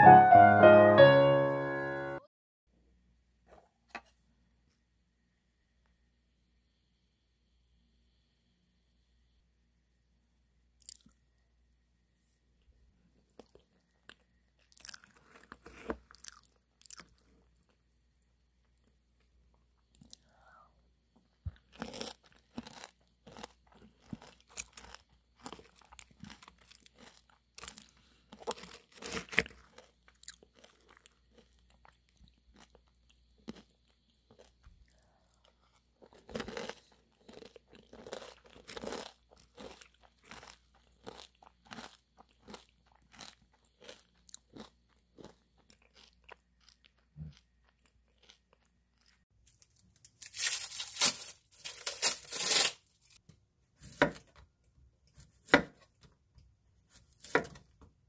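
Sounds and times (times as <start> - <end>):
chewing: 13.3 - 17.8, 21.2 - 49.2
cereal crunching: 13.4 - 17.2, 21.5 - 34.6, 36.0 - 47.0, 47.7 - 52.9.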